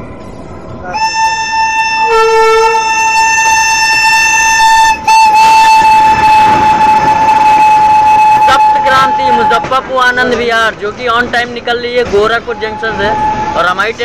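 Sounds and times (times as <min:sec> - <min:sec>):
rumble of passing train: 0:00.0 - 0:14.0
locomotive horn blast: 0:00.8 - 0:09.7, 0:12.5 - 0:13.7.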